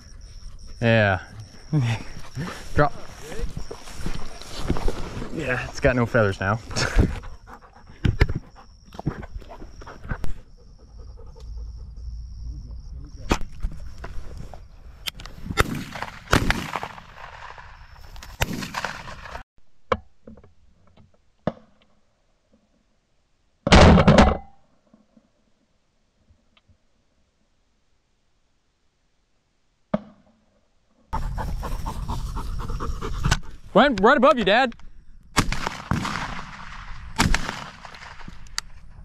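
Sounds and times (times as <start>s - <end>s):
shotgun blast: 15.6s - 17.6s, 35.4s - 38.4s.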